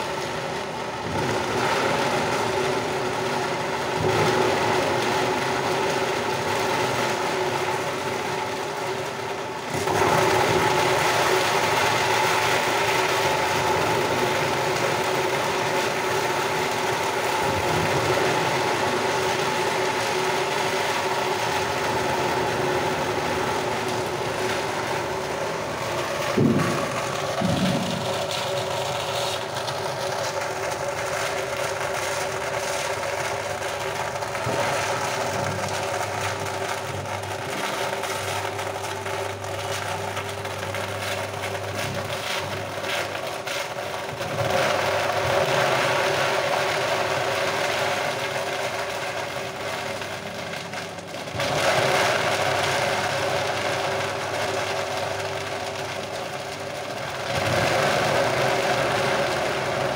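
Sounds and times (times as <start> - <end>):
foam shredding machine running: 0.0 - 59.9.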